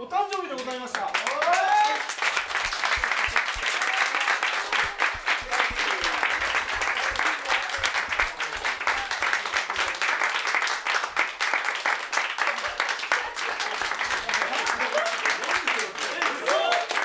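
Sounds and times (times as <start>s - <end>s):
people clapping: 0.1s - 17.0s.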